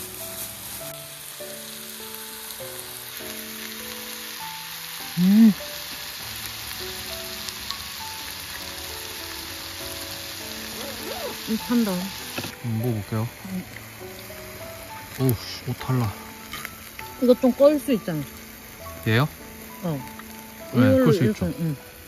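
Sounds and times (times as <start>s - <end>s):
meat sizzling in a skillet: 0.0s - 22.0s
soft background music: 0.0s - 22.0s.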